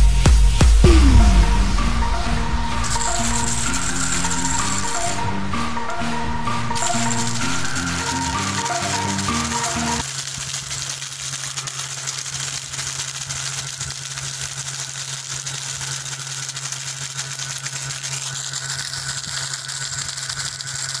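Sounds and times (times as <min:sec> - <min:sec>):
high whine: 0:00.0 - 0:10.1
small electric motor humming: 0:00.9 - 0:21.0
plastic jar buzzing rattle: 0:02.7 - 0:05.3, 0:06.7 - 0:21.0.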